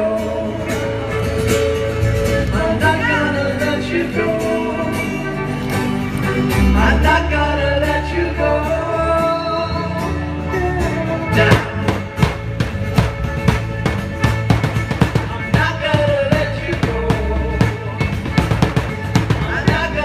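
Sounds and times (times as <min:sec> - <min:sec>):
person singing: 0:00.0 - 0:01.2, 0:02.5 - 0:12.1, 0:15.0 - 0:20.0
acoustic guitar: 0:00.0 - 0:20.0
bass guitar: 0:00.0 - 0:20.0
hard drum strikes: 0:11.5 - 0:20.0.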